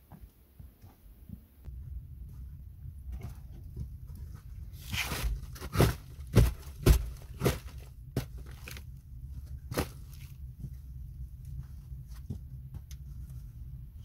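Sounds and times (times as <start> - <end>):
low steady hum: 0.0 - 14.0
sharp knocks and crunches: 3.0 - 10.8.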